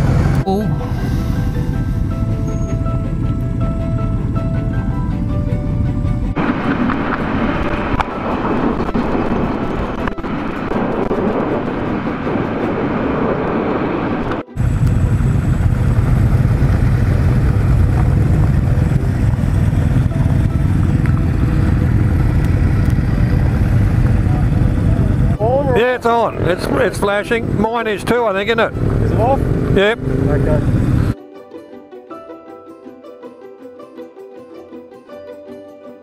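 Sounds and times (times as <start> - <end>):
motorcycle engines running: 0.0 - 0.5, 1.7 - 31.2
deep engine rumble: 0.0 - 31.2.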